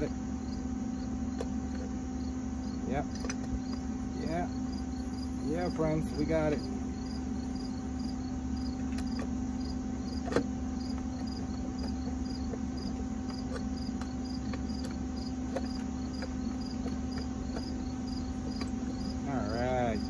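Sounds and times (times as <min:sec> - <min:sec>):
constant low hum: 0:00.0 - 0:20.0
crickets chirping: 0:00.0 - 0:20.0.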